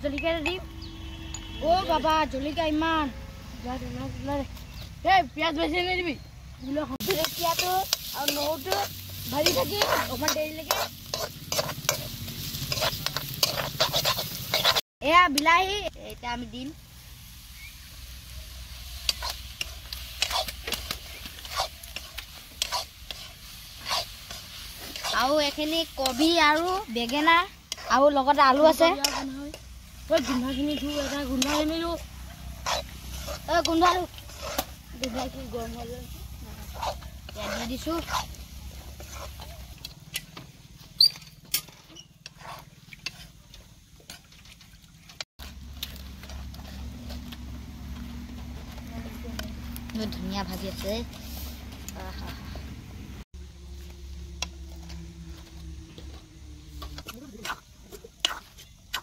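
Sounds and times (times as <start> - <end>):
faint sizzle: 6.8 - 44.3
metal spatula scraping wok: 7.0 - 14.8, 17.3 - 43.4, 53.7 - 59.0.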